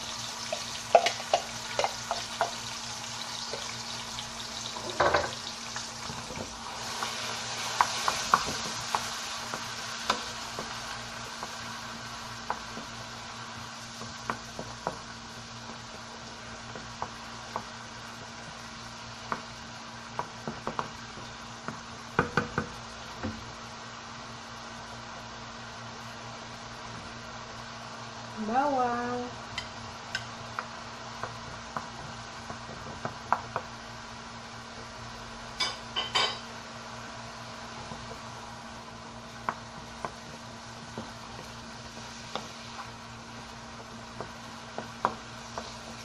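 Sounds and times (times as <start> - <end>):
food sizzling in a frying pan: 0.0 - 46.0
spoon tapping pan: 0.9 - 2.6.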